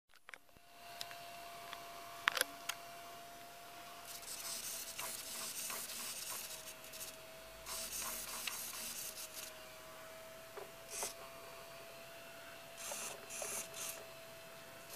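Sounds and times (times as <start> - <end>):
servos whirring: 4.0 - 14.9.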